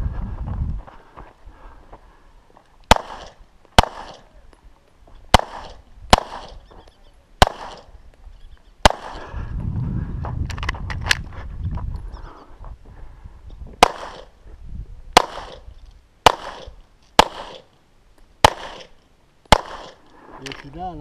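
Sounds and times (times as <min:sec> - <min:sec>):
low rumble: 0:00.0 - 0:01.6, 0:09.2 - 0:16.0
pistol shots with echo: 0:02.9 - 0:04.4, 0:05.3 - 0:06.7, 0:07.4 - 0:07.9, 0:08.8 - 0:09.2, 0:13.8 - 0:14.3, 0:15.2 - 0:17.7, 0:18.4 - 0:20.0.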